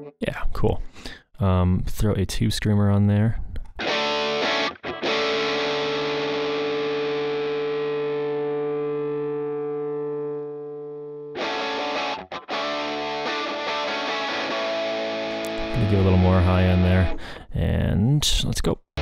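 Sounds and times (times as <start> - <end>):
overdriven electric guitar chords: 3.8 - 17.3.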